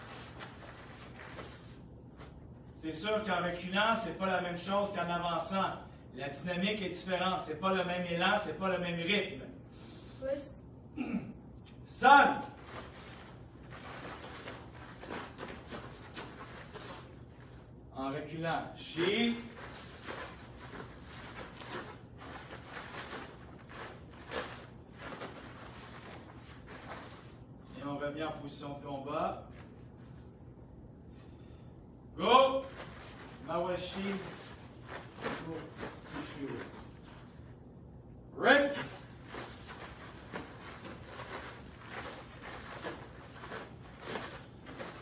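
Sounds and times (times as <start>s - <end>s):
bare feet on foam mats: 0.0s - 2.6s, 12.3s - 17.7s, 18.9s - 27.5s, 32.6s - 37.6s, 38.5s - 45.0s
cloth uniforms swishing: 0.0s - 2.7s, 12.4s - 17.8s, 19.0s - 27.7s, 32.6s - 37.6s, 38.6s - 45.0s
low room hum: 0.0s - 45.0s.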